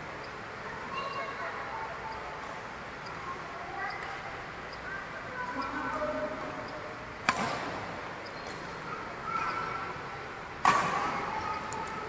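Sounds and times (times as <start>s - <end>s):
faint voices: 0.0s - 12.0s
racket striking shuttlecock: 7.2s - 7.7s, 10.6s - 11.1s.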